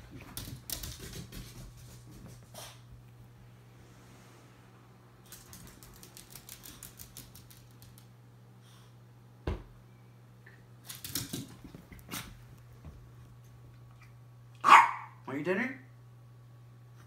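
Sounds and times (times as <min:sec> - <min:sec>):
dog claws clicking on tile: 0:00.2 - 0:01.6, 0:05.3 - 0:08.1.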